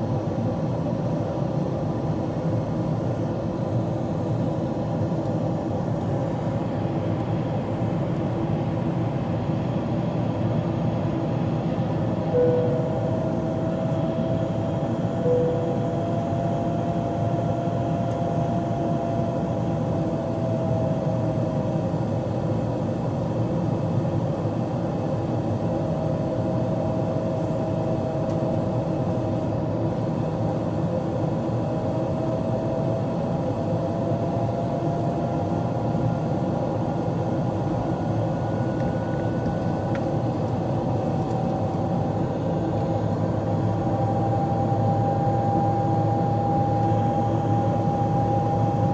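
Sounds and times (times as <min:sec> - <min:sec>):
airplane cabin engine noise: 0:00.0 - 0:48.9
faint wavering engine tone: 0:12.2 - 0:19.7, 0:37.2 - 0:48.9.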